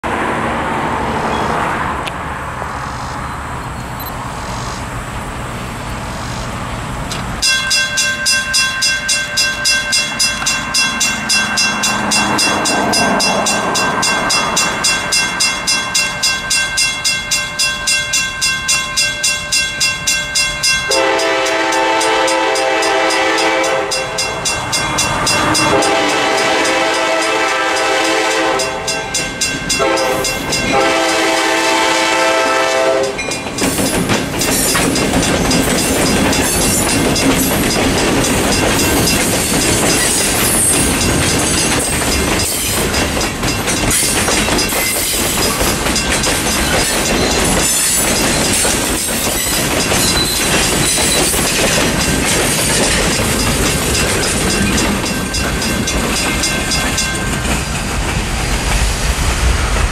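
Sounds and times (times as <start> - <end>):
crossing bell ringing: 7.4 - 57.9
locomotive horn blasts: 20.9 - 29.2, 29.8 - 33.3
steady low rumble: 57.8 - 59.9.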